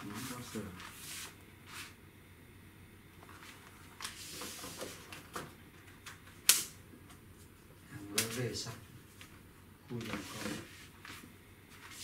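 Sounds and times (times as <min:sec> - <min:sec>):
sharp loud click: 0:06.5 - 0:06.8.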